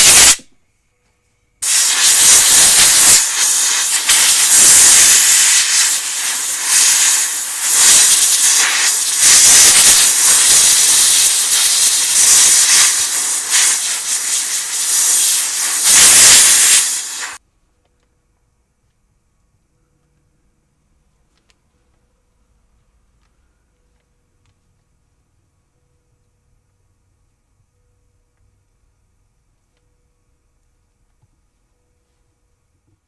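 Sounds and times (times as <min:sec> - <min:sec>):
air blow gun hissing: 0:00.0 - 0:00.5, 0:01.6 - 0:17.4.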